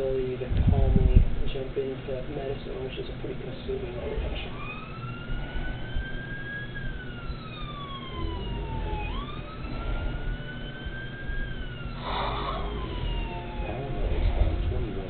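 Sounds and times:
low background rumble: 0.0s - 15.0s
emergency siren wailing: 4.1s - 15.0s.

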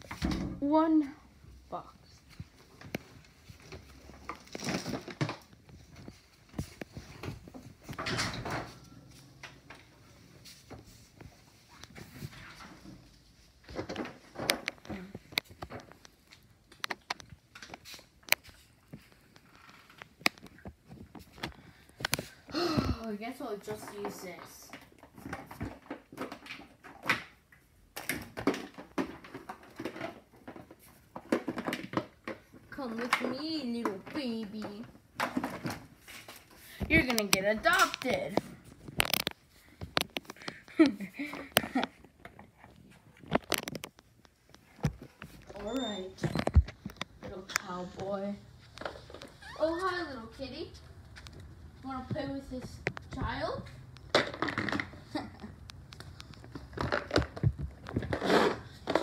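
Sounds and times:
handling rustling and scraping: 1.7s - 22.5s, 28.4s - 59.0s.

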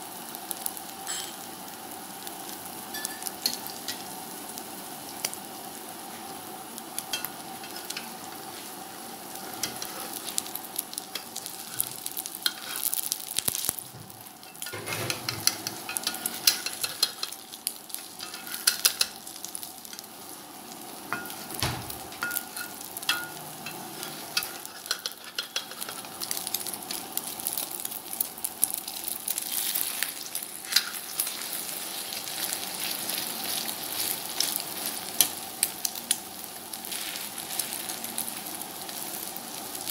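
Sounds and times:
omelette sizzling in hot oil: 0.0s - 39.9s
metal spatula scraping pan: 12.5s - 12.9s.

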